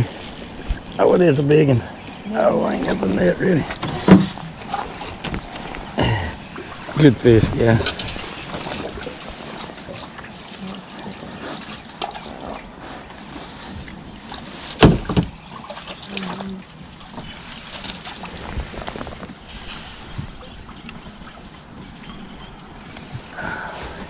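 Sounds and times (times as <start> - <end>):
lake water washing: 0.0 - 24.0
thump on aluminum boat: 3.7 - 4.4, 14.8 - 15.4.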